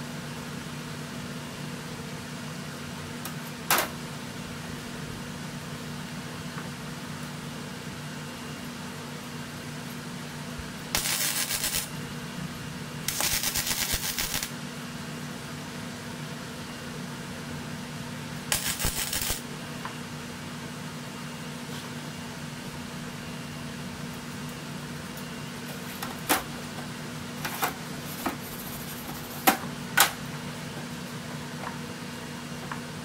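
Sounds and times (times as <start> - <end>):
steady hum: 0.0 - 33.0
welder arc crackling: 10.9 - 11.9, 13.1 - 14.5, 18.5 - 19.4.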